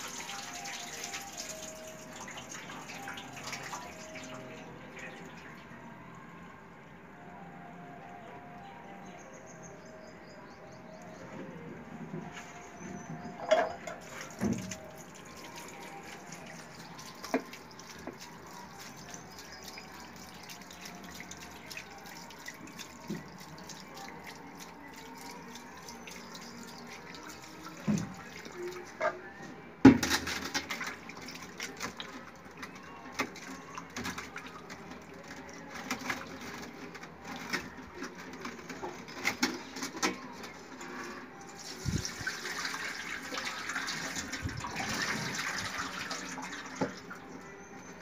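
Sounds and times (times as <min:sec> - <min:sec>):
water splashing and sloshing: 0:00.0 - 0:05.6, 0:11.0 - 0:29.2, 0:29.8 - 0:48.0
metal dish clanking: 0:13.4 - 0:14.0.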